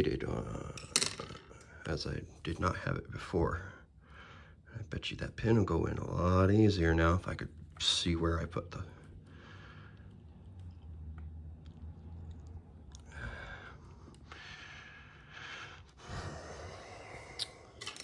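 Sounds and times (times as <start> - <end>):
low steady hum: 0.0 - 18.0
faint clicks of small parts: 0.7 - 1.8, 9.0 - 14.6, 17.1 - 18.0
person breathing heavily and sighing: 13.0 - 18.0.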